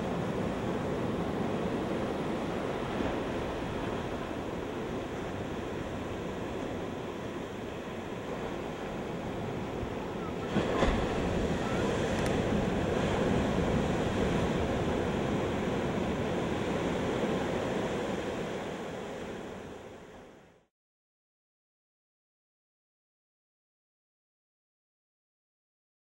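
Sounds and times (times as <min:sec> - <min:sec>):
ocean surf on beach: 0:00.0 - 0:20.6.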